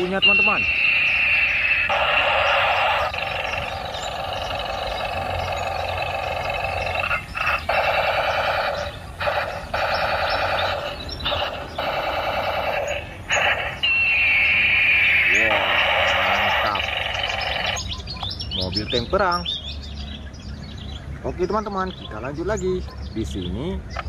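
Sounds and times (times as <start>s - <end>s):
toy tank electronic sound effects: 0.0s - 18.0s.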